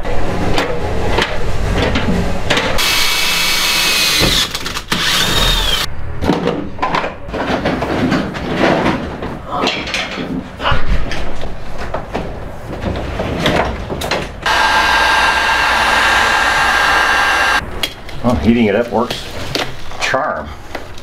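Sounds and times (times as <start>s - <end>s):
drill cutting through metal: 2.8s - 5.9s, 14.5s - 17.6s.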